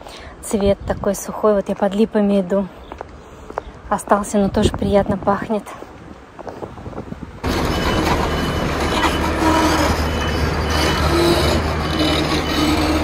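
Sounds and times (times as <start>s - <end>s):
large vehicle engine humming: 7.4s - 13.0s.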